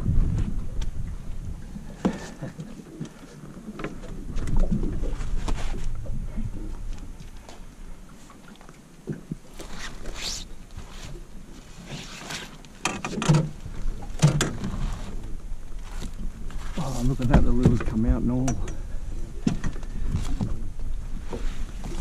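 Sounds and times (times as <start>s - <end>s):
landing net rustling and scraping: 9.4s - 13.5s.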